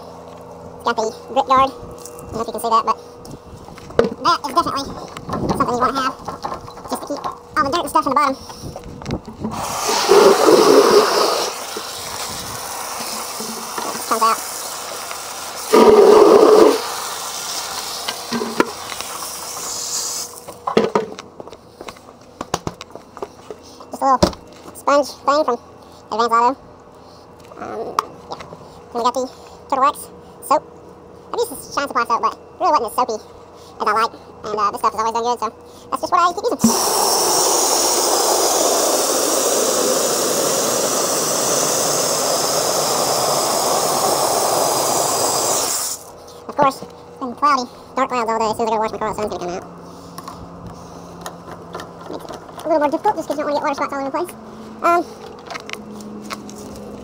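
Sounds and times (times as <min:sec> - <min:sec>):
hose water splashing on concrete: 0:09.6 - 0:20.4, 0:36.6 - 0:46.1.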